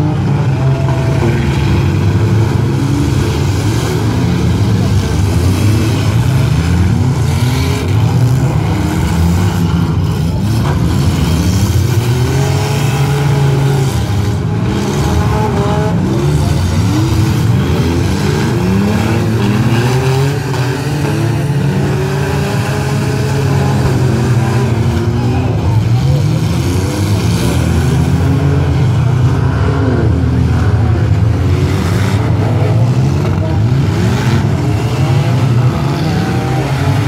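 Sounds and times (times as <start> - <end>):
car engines revving: 0.0 - 37.0.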